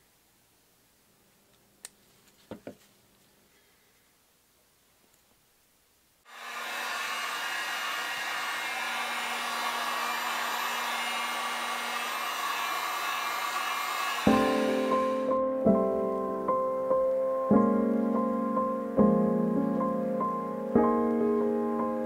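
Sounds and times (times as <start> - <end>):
heat gun fan blowing: 6.3 - 15.5.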